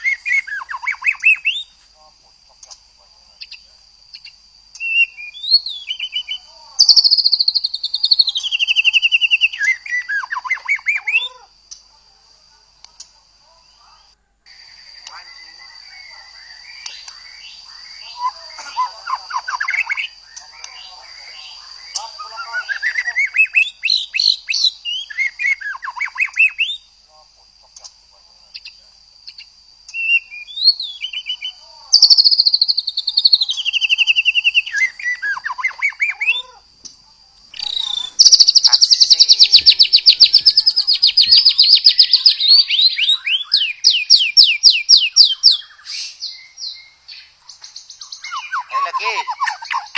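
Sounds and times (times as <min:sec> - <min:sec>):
bird singing whistles and trills: 0:04.8 - 0:11.3, 0:19.2 - 0:26.9, 0:29.9 - 0:36.4, 0:37.6 - 0:49.9.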